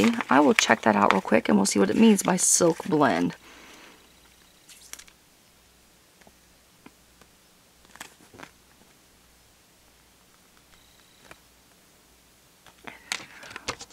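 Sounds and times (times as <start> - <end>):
paper booklet rustling: 0.0 - 3.4, 4.2 - 5.2, 7.2 - 9.0.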